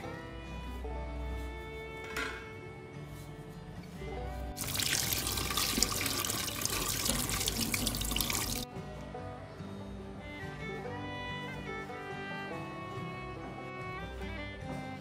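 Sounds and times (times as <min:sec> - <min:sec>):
background music: 0:00.0 - 0:15.0
tap water running into sink: 0:04.6 - 0:08.7.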